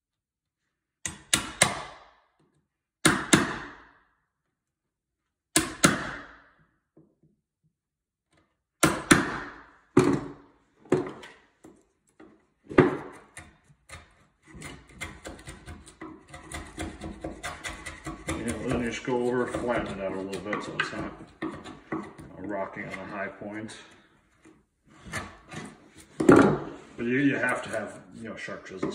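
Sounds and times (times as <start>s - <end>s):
chisel scraping and clicking: 11.1s - 26.3s, 27.4s - 28.0s.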